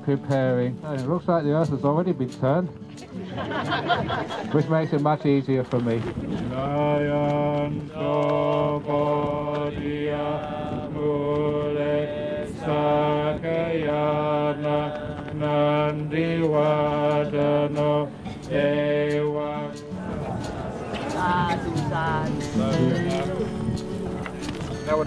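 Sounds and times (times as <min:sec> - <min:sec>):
group chanting: 0:06.6 - 0:23.7.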